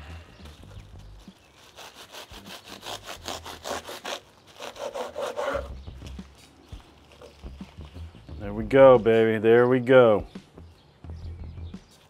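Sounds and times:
knife sawing through foil and bread: 0.5 - 5.8.

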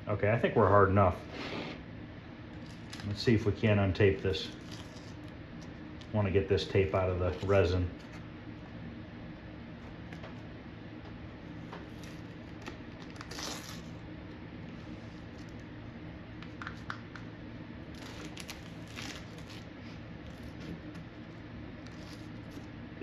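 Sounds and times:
tape peeling and tearing: 2.6 - 3.2, 4.5 - 6.1, 11.9 - 14.0, 17.9 - 21.0, 21.8 - 22.7.

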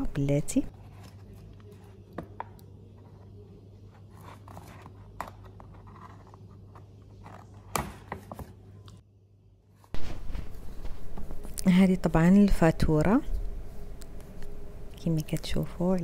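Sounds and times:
paper rustling: 9.8 - 11.5.

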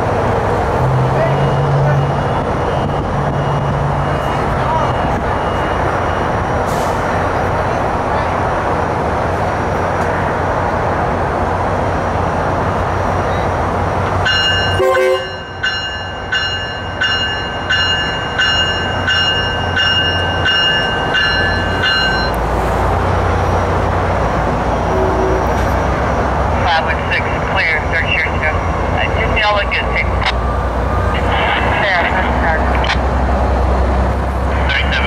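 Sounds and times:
low train rumble: 0.0 - 35.0
train bell ringing: 14.2 - 22.4.

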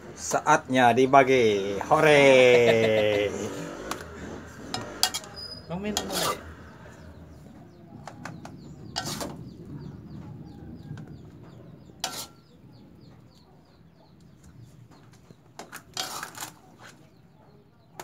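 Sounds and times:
metal spatula scraping a wok: 3.6 - 6.8, 8.9 - 9.6, 12.0 - 12.5, 15.6 - 16.6.

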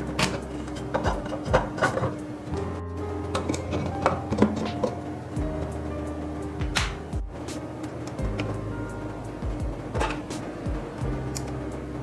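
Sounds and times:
percussion hits: 0.0 - 2.2, 6.6 - 8.6, 9.4 - 11.5
background music: 0.0 - 12.0.

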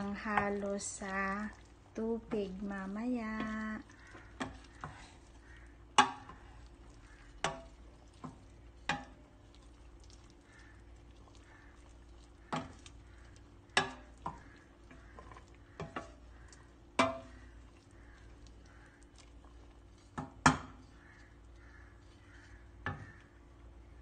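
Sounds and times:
wooden spoon knocking against pot: 3.3 - 5.0, 5.9 - 6.4, 7.4 - 9.2, 12.4 - 13.0, 13.7 - 17.5, 20.1 - 20.8, 22.8 - 23.3.

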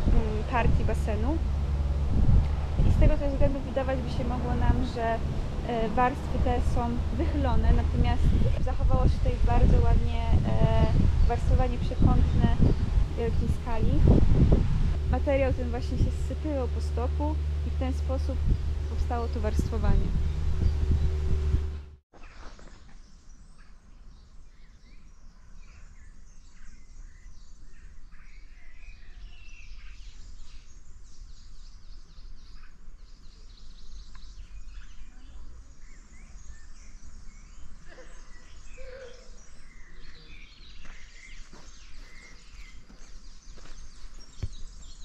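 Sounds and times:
steady low rumble: 0.0 - 22.0
songbirds chirping and singing: 15.2 - 45.0.

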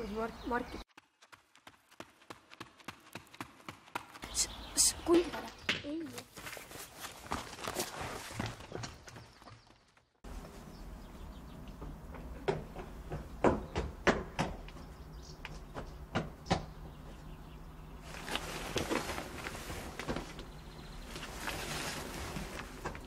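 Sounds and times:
footsteps on stone paving: 0.6 - 10.6
rustling and scuffing: 5.2 - 9.6, 18.0 - 23.0.

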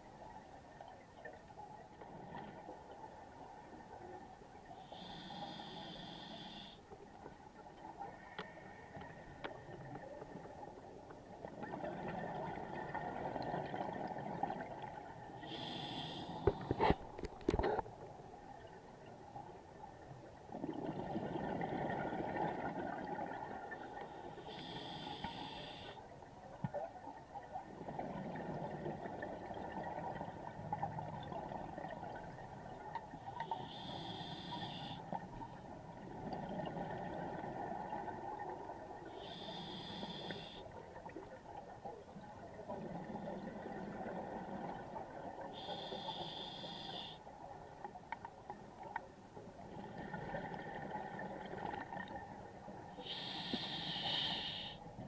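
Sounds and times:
regulator hissing inhalation: 33.6 - 35.0, 39.2 - 40.6, 45.6 - 47.2, 53.0 - 54.8.

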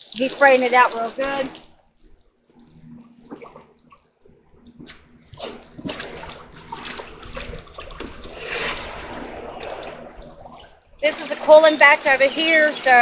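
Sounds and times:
water from hose splashing: 0.0 - 1.8, 4.8 - 13.0.

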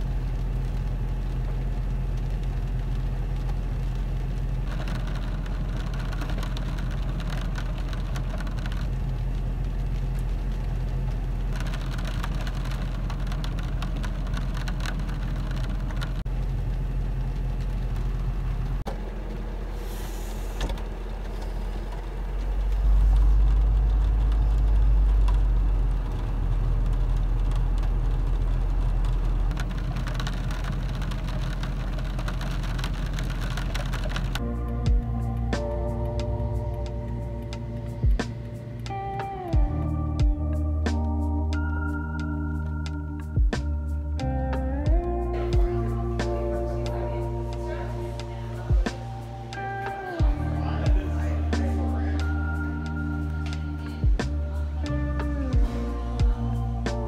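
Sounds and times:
low engine hum: 0.0 - 57.0
low rumble: 0.0 - 57.0
rain on a car: 0.0 - 57.0.

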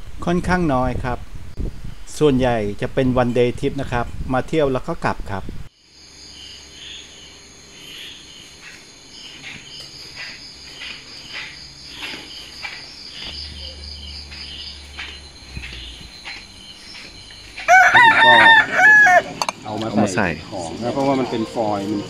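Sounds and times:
insects chirping: 0.0 - 22.0
rooster crowing: 17.6 - 19.6.

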